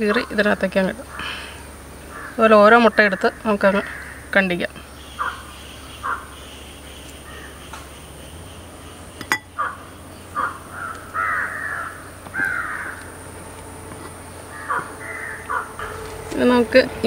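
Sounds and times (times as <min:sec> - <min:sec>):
crows cawing: 0:01.1 - 0:04.4, 0:05.0 - 0:07.8, 0:09.5 - 0:13.3, 0:14.5 - 0:16.2.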